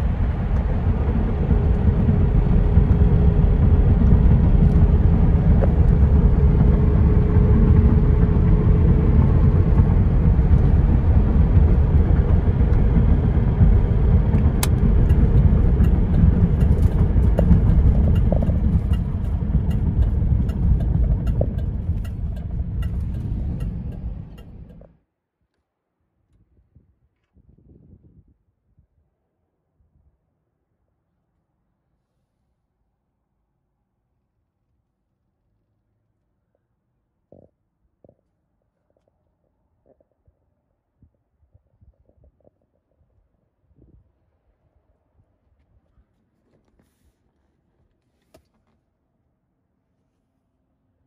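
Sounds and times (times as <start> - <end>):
car engine running at low revs: 0.0 - 25.0
road and tyre rumble: 0.0 - 25.0.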